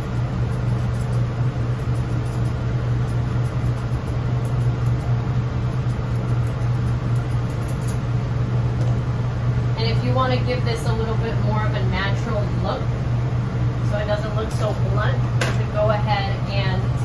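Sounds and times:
shears snipping fur: 0.0s - 8.0s
machine humming: 0.0s - 17.0s.

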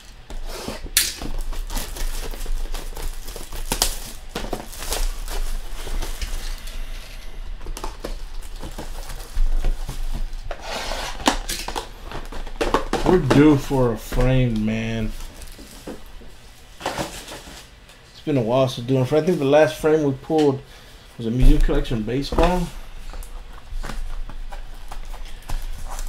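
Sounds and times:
plastic shrink wrap tearing: 0.7s - 6.8s.

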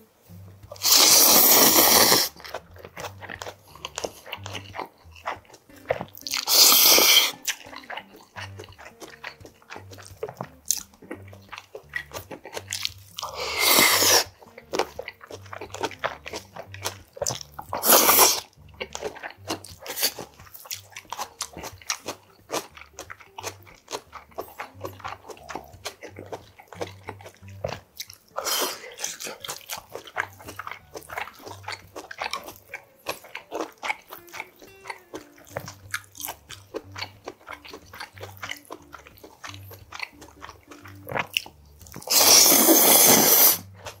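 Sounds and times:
chewing and crunching: 0.3s - 44.0s
loud slurps: 0.8s - 2.4s, 6.4s - 7.5s, 13.2s - 14.4s, 17.8s - 18.5s, 42.0s - 43.7s.

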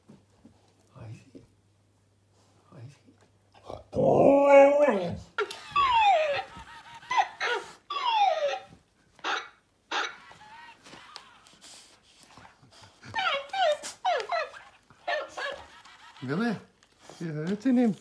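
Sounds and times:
dog-like whining yelps: 4.0s - 11.6s, 13.1s - 16.4s.

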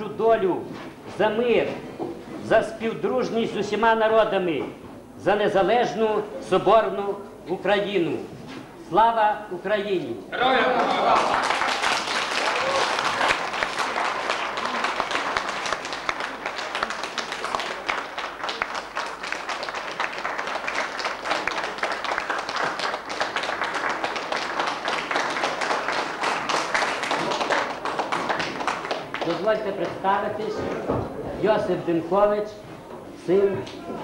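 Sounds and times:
audience applauding: 10.7s - 30.0s.

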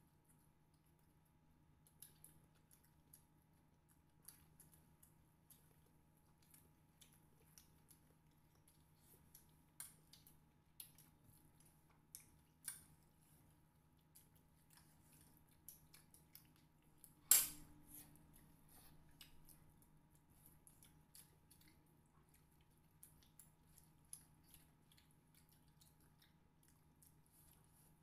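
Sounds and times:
soft chewing: 0.0s - 28.0s.

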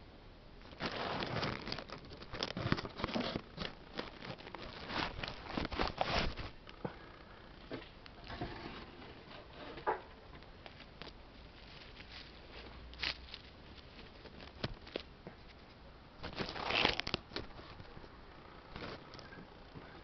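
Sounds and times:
dry leaves crackling and rustling: 0.7s - 6.6s, 10.6s - 15.2s, 16.2s - 18.0s.

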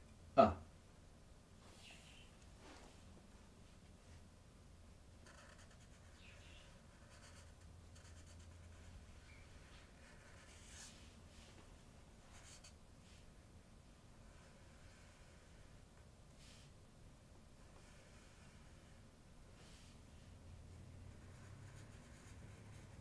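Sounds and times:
marker scratching on paper: 5.2s - 11.1s, 12.3s - 12.8s, 17.6s - 19.0s, 21.1s - 23.0s.

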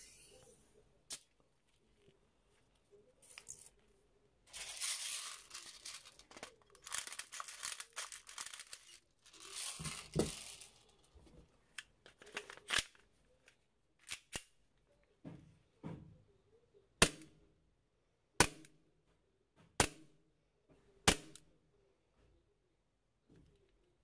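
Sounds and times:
rustling hissing handling noise: 0.0s - 13.0s.

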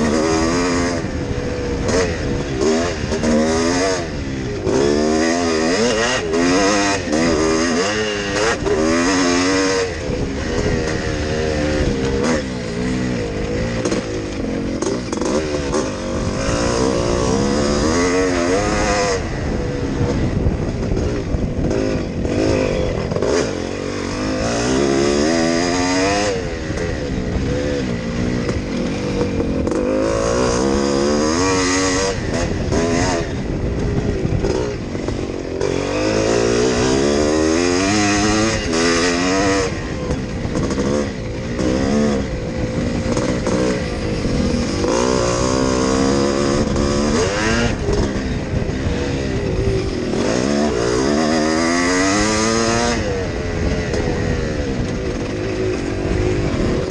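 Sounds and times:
motocross engine revving: 0.0s - 56.9s.

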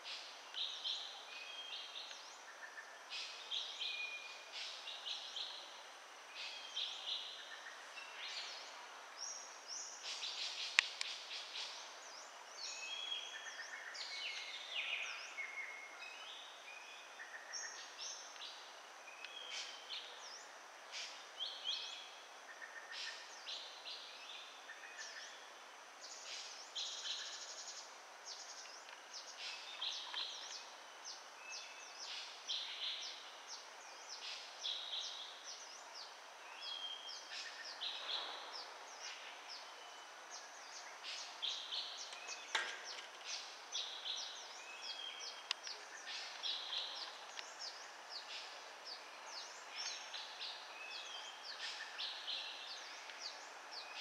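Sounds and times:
wild birds chirping: 0.0s - 54.0s.

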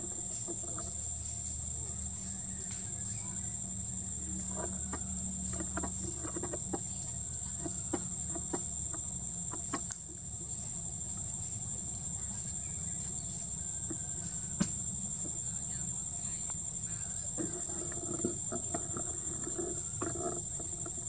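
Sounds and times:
high-pitched insect drone: 0.0s - 21.0s.

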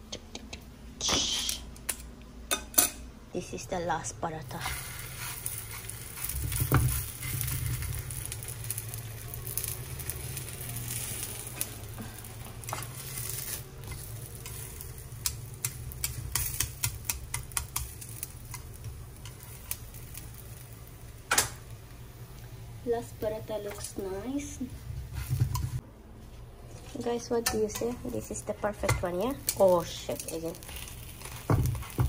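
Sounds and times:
low steady hum: 0.0s - 32.0s
metal tongs clicking on pan: 1.9s - 3.0s, 13.8s - 20.3s, 21.3s - 21.6s, 27.3s - 28.2s, 28.8s - 32.0s
flatbread sizzling in a pan: 4.6s - 25.8s, 27.0s - 32.0s.

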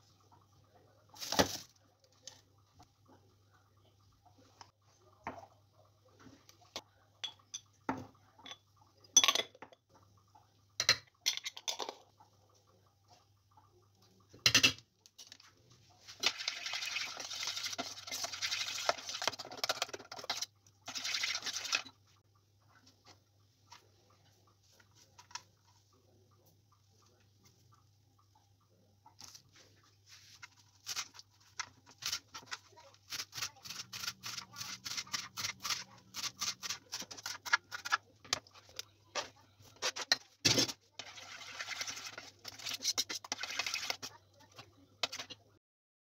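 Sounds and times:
fork stirring batter in a pot: 15.1s - 22.0s, 29.2s - 45.4s.

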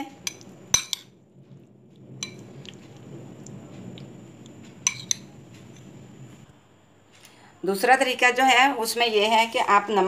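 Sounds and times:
spoon clinking on dish: 0.2s - 1.1s, 4.8s - 5.3s
spoon stirring in a bowl: 0.2s - 1.2s, 2.2s - 3.5s, 4.8s - 5.9s.

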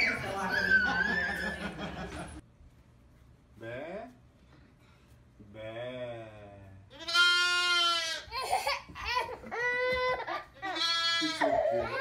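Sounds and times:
baby goat bleating: 6.9s - 8.4s, 9.8s - 12.0s.

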